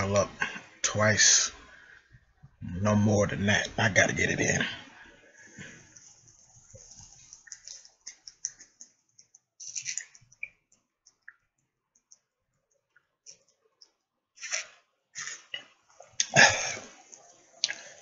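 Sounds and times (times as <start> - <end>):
man gulping from a bottle: 16.2 - 17.0.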